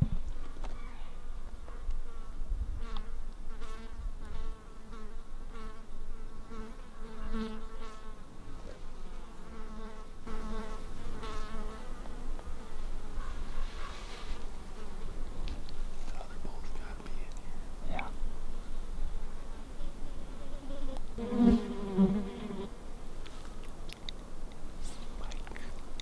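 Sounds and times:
flying insect buzzing: 0.4 - 15.4, 18.0 - 23.1.

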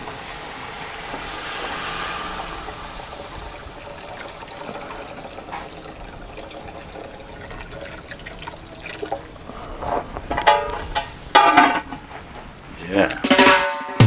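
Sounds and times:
liquid trickling into a pot: 3.1 - 10.0.

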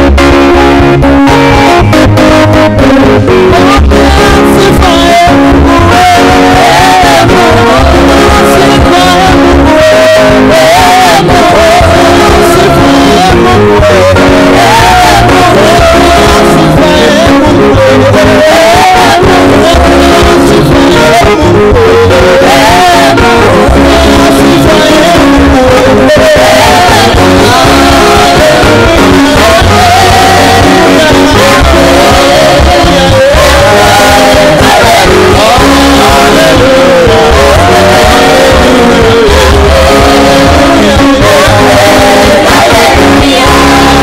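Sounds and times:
band with guitar and bass: 0.0 - 44.0
man singing into a microphone: 0.0 - 44.0
women singing: 3.6 - 44.0.

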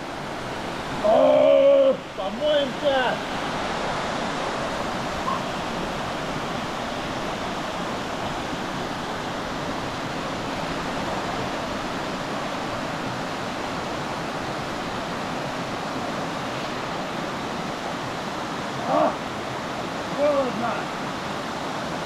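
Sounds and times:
river rushing over waterfalls: 0.0 - 22.0.

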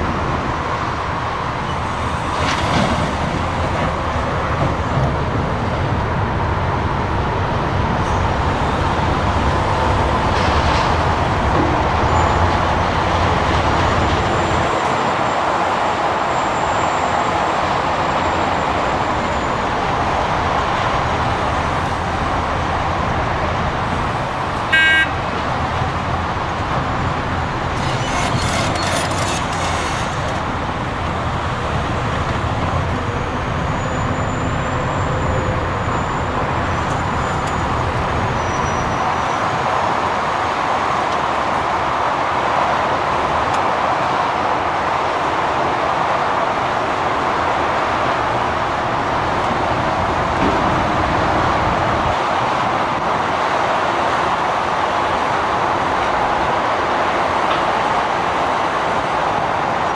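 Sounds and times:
motorway traffic: 0.0 - 59.9
heavy diesel machinery rumble: 18.4 - 39.6
horn toot: 24.7 - 25.2, 27.8 - 30.4.

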